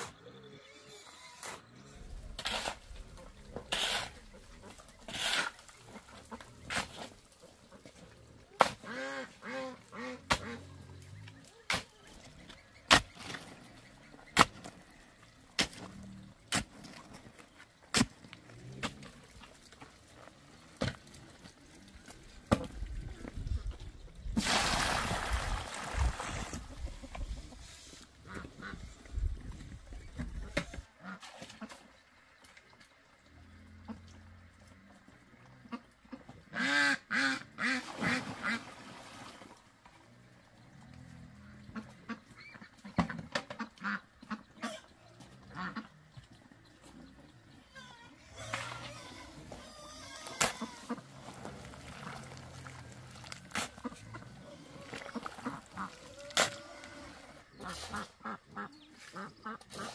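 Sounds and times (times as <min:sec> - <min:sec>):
ducks quacking: 0:02.8 - 0:14.8, 0:25.3 - 0:32.0, 0:33.8 - 0:38.7, 0:40.8 - 0:59.9.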